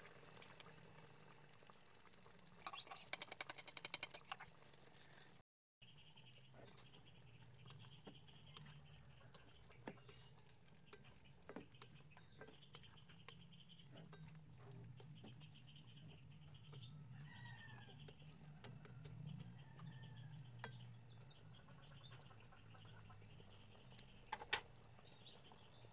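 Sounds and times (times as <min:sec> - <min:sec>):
sauce bubbling with small pops: 0:00.0 - 0:04.8, 0:07.4 - 0:15.3.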